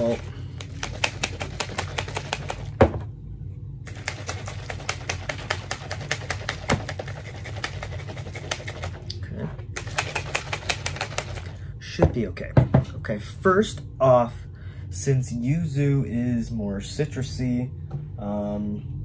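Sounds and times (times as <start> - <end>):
shaker bottles rattling: 0.0 - 2.9, 3.9 - 11.6.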